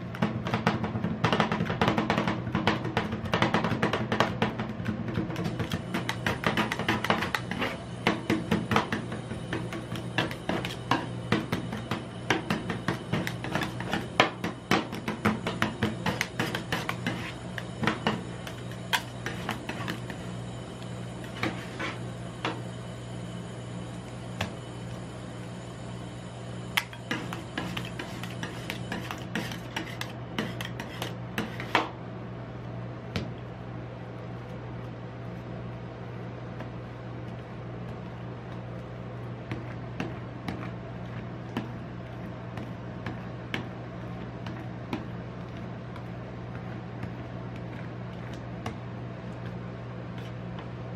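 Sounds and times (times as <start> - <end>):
steady low hum: 0.0 - 50.9
metal spatulas chopping and scraping: 5.4 - 20.2, 21.2 - 22.0, 26.8 - 31.9.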